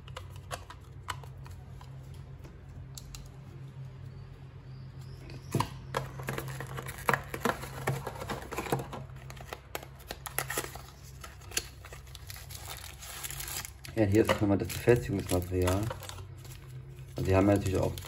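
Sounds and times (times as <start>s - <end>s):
faint low hum: 0.0s - 18.0s
cardboard packaging handled: 5.9s - 18.0s.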